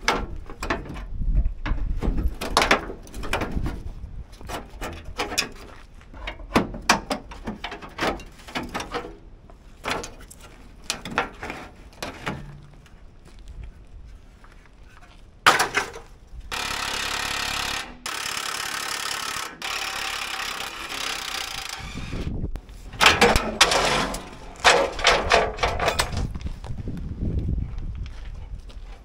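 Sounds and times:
metal clanks: 22.9 - 26.3.

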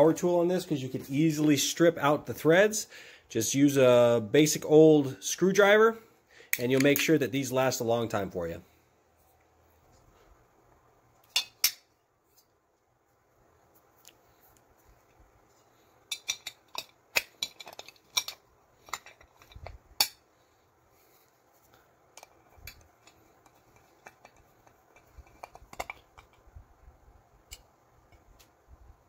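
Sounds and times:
glass lid parts clinking: 16.1 - 20.2.

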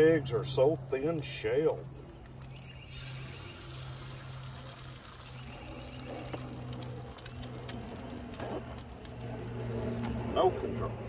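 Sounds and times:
low steady hum: 0.0 - 11.0
eggs sizzling on griddle: 2.1 - 10.1.

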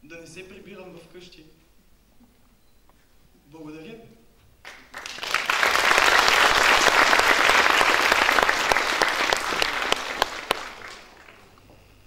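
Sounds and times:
audience applauding: 4.6 - 11.6.

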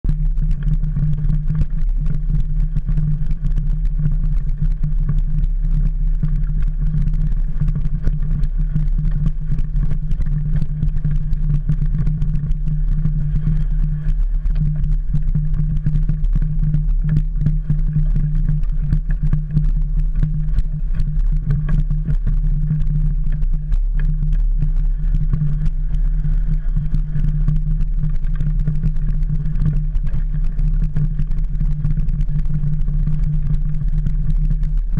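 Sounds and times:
bike rumble and hum: 0.0 - 34.9.

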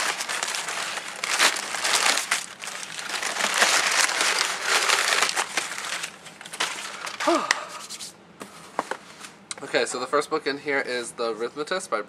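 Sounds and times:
packing paper crinkling and rustling: 0.0 - 8.1.

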